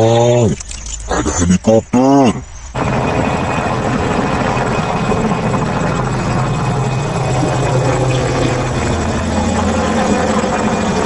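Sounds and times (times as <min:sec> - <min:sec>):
high-pitched turbine whine: 0:00.0 - 0:11.0
helicopter engine and rotor: 0:02.7 - 0:11.0.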